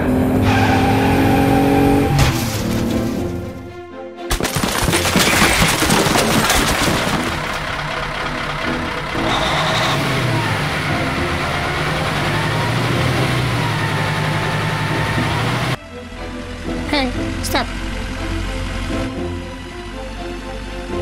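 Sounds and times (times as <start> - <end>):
low truck engine: 0.0 - 3.9, 4.5 - 21.0
garbage rattling clatter: 2.2 - 3.4, 4.3 - 8.6.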